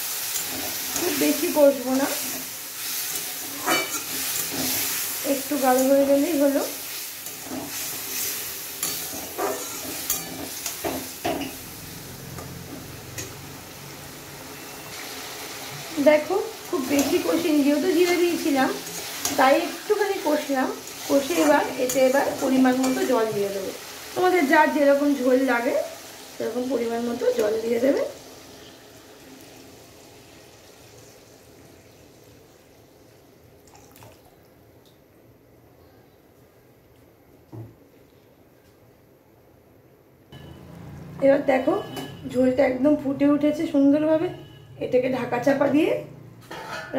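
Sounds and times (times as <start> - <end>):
food sizzling in oil: 0.0 - 33.2
metal spatula scraping a pan: 2.2 - 5.0, 7.2 - 11.6
water pouring into a pan: 33.6 - 34.4.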